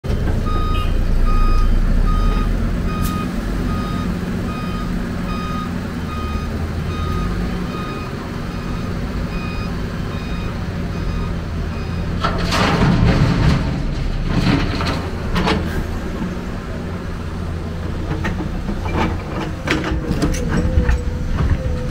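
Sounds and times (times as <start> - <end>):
heavy engine running: 0.0 - 21.9
reversing alarm beeping: 0.5 - 12.2.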